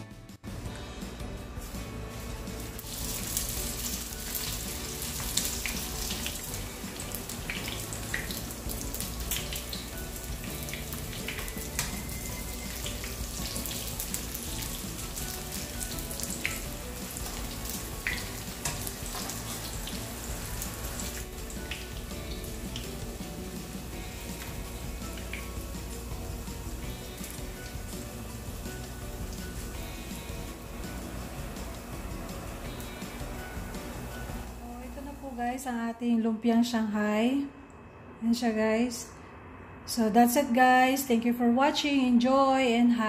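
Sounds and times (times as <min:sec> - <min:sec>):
spring rolls frying in oil: 0:01.6 - 0:34.9.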